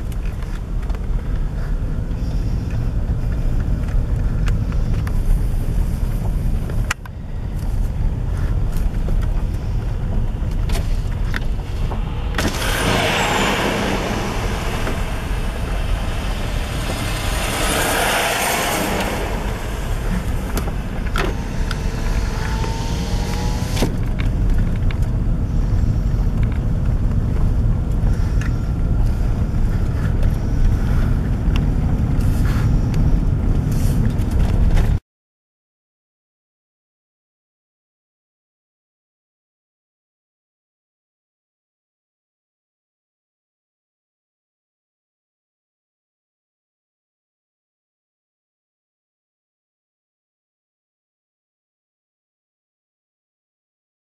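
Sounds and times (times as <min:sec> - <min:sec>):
car cabin road rumble: 0:00.0 - 0:35.0
truck passing: 0:09.6 - 0:34.8.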